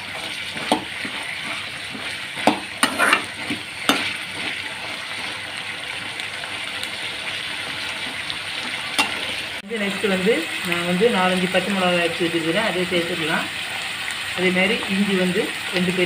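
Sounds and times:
spoon stirring and scraping pan: 0:00.0 - 0:09.6
food sizzling in oil: 0:00.0 - 0:16.0
spoon knocking against pan: 0:00.6 - 0:01.2, 0:01.9 - 0:04.1.

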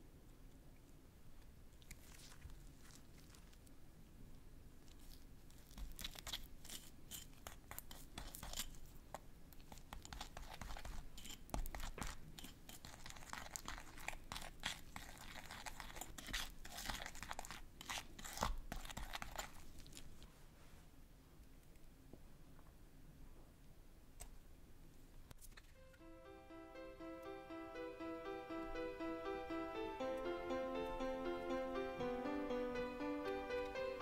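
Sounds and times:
utensil stirring icing in bowl: 0:05.6 - 0:20.2.

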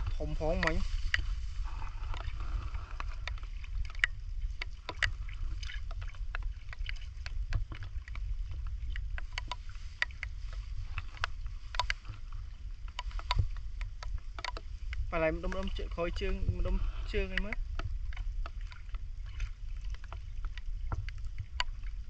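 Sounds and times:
water sloshing and splashing: 0:00.0 - 0:22.0
wind rumble on microphone: 0:00.0 - 0:22.0
metal hook ticking: 0:14.0 - 0:16.4.

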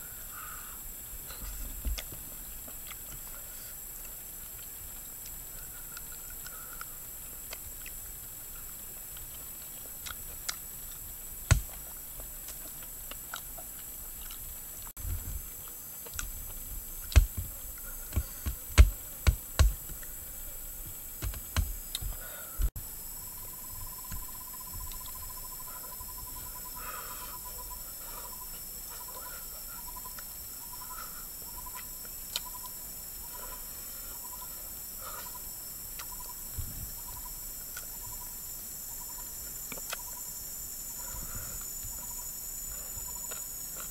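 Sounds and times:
high insect drone: 0:00.0 - 0:43.9
insect pulsed chirping: 0:00.0 - 0:43.9
chewing and crunching food: 0:01.3 - 0:22.3, 0:31.6 - 0:32.6, 0:39.4 - 0:40.2.

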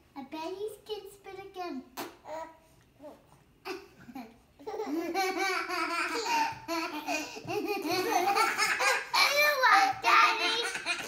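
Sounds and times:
baby and child laughing: 0:03.7 - 0:11.0.

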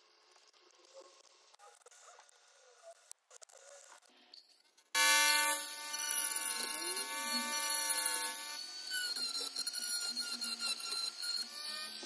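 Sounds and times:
rotary tool motor whining: 0:05.0 - 0:12.0.

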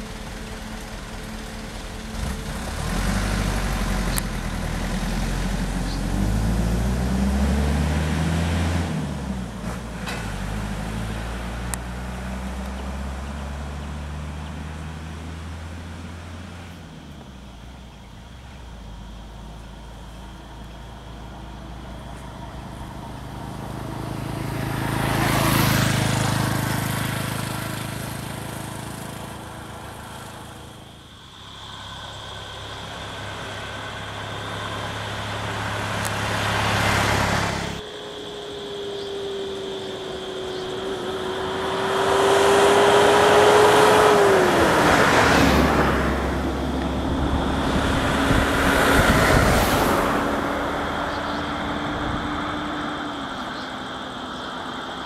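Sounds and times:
steady engine hum: 0:00.0 - 0:55.0
vehicle engines passing: 0:00.0 - 0:55.0.

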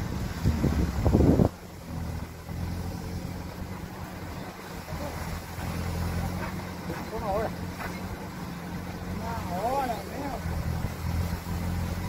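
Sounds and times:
wind on microphone: 0:00.0 - 0:01.7
distant diesel engine humming: 0:00.0 - 0:12.0.

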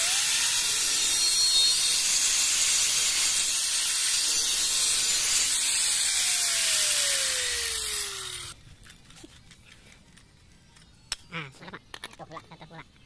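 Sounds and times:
angle grinder grinding tile: 0:00.0 - 0:08.6.

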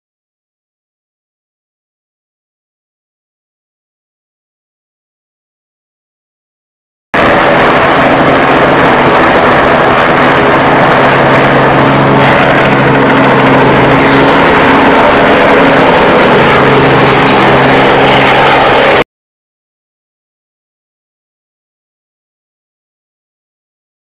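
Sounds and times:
helicopter rotor and engine: 0:07.2 - 0:19.0.

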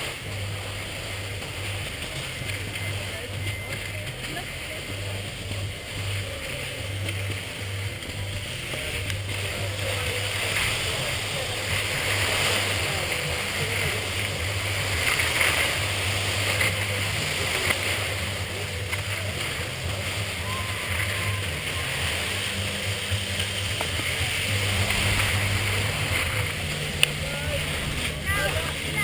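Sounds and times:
low rumble: 0:15.8 - 0:29.0.

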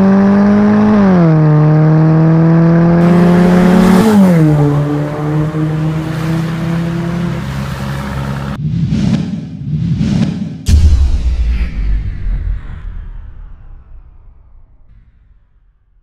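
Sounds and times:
car engine accelerating through exhaust: 0:00.0 - 0:08.6.

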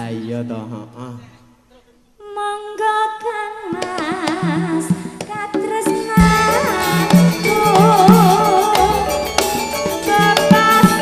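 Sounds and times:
percussion: 0:03.6 - 0:11.0.

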